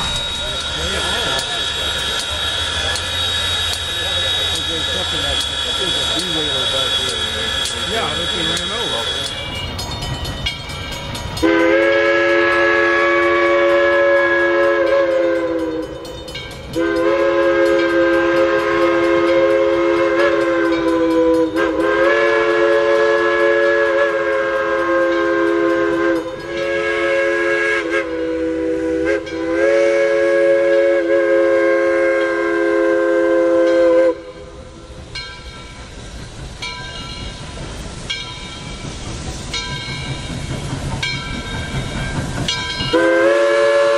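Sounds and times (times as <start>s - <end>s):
steam whistle blasts: 0.0s - 9.5s, 11.4s - 34.9s, 42.8s - 43.9s
distant approaching train: 0.0s - 43.9s.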